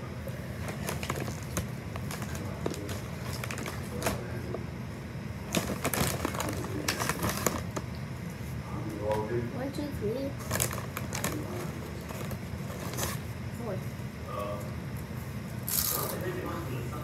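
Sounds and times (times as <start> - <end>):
chip bag crinkling: 0.6 - 4.6, 5.4 - 7.8, 10.4 - 13.2, 15.6 - 16.2.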